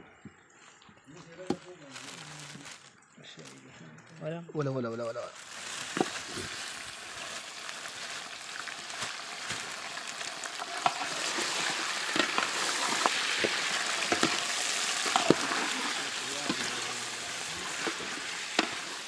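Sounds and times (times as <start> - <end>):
chicken sizzling in hot oil: 5.2 - 19.0.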